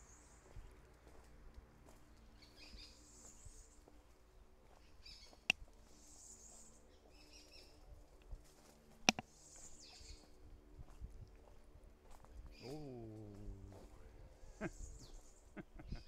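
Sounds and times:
birds calling scratchily: 4.8 - 7.8, 12.5 - 16.0.

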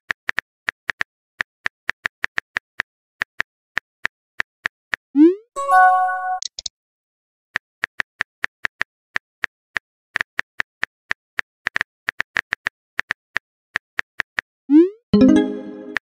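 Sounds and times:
phone keyboard typing clicks: 6.4 - 6.7.

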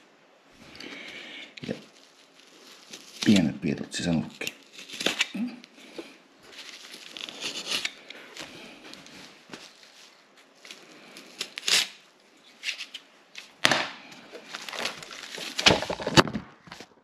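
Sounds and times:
scraping and rustling: 0.6 - 13.6, 14.2 - 17.0.

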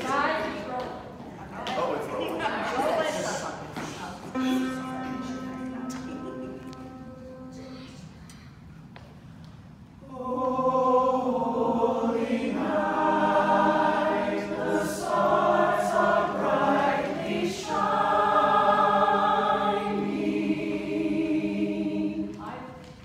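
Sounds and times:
mixed choir singing: 10.0 - 22.4.

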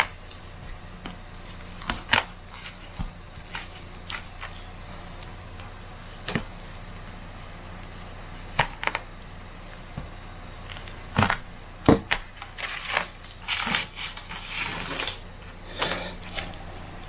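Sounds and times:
scratchy rustling of paper: 12.4 - 15.2.

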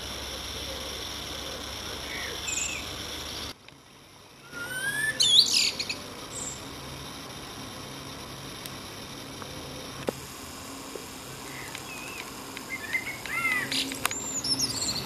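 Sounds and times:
blackbird singing: 2.0 - 2.9, 4.4 - 6.6, 11.5 - 15.0.

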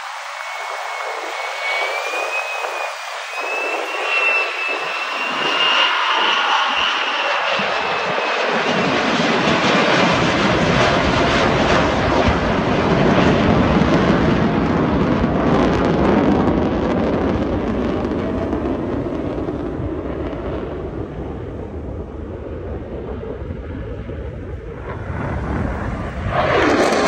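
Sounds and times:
jet engine flying overhead: 0.0 - 27.0.

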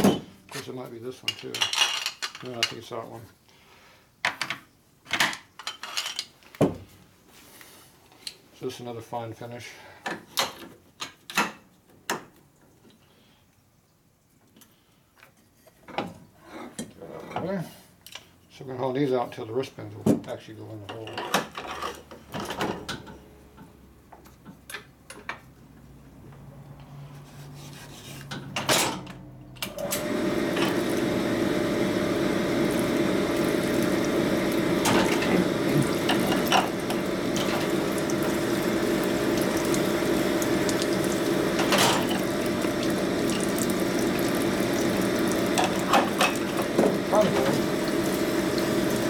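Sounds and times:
honing machine running: 29.7 - 49.0.

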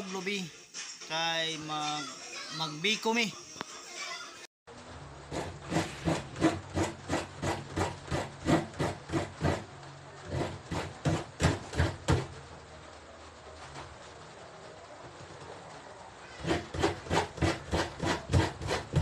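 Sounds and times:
coconut grating strokes: 5.2 - 12.3, 16.3 - 19.0.

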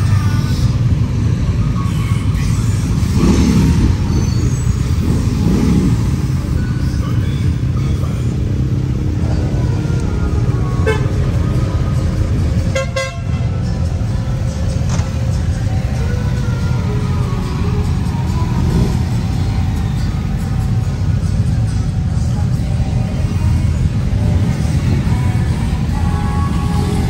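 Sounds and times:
motorcycle engines rumbling: 0.0 - 27.0
horn toot: 12.7 - 13.6.

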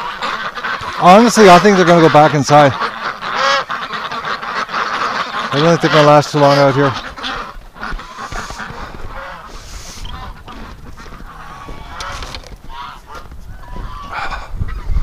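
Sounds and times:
waterfowl calling: 0.0 - 15.0
wind buffeting microphone: 7.4 - 15.0.

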